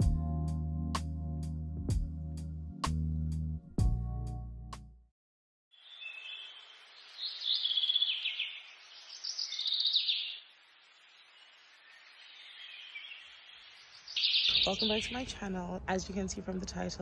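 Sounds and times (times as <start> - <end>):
birds chirping and singing: 5.9 - 10.5, 11.1 - 15.5.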